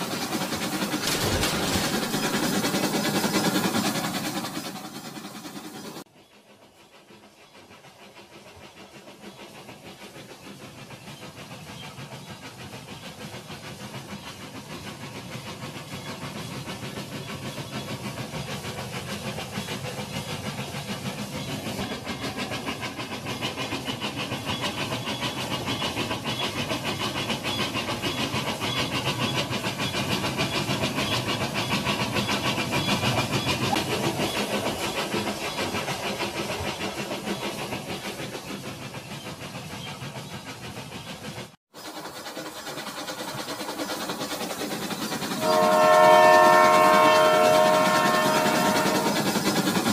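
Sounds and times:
toy train rattling on track: 0.0s - 6.0s, 41.8s - 49.9s.

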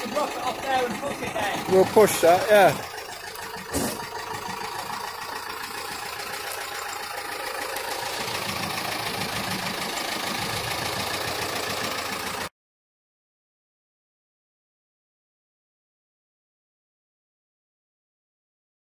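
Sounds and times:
tractor diesel engine running: 0.0s - 12.5s.

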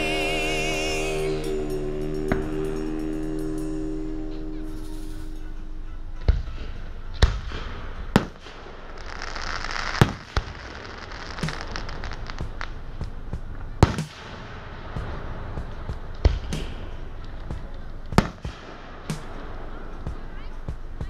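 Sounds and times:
firework booms: 7.2s - 20.3s
firework pops and crackles: 7.2s - 20.8s
firework hissing: 7.5s - 13.0s.

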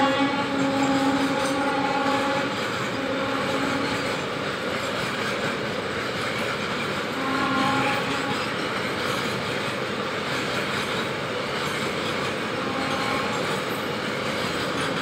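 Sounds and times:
train horn chord: 0.0s - 4.2s, 7.1s - 8.6s, 12.6s - 13.7s
train wheels rumbling on rails: 0.0s - 15.0s.

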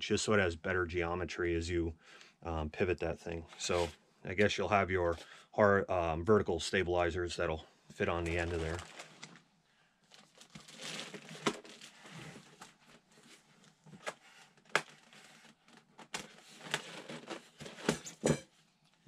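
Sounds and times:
plastic wrap crinkling: 8.2s - 13.1s.

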